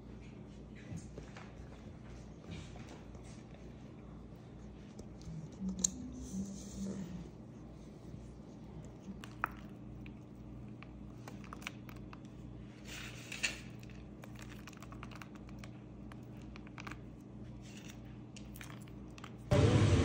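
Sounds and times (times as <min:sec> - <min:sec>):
low hum: 0:15.2 - 0:20.0.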